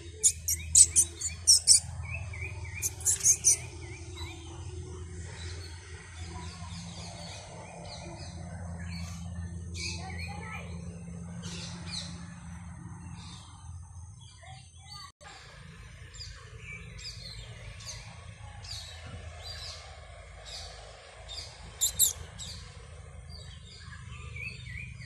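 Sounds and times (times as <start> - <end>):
high-pitched animal chirps: 0.0 - 1.8, 2.8 - 3.6, 21.8 - 22.2
steady low rumble: 0.0 - 14.1.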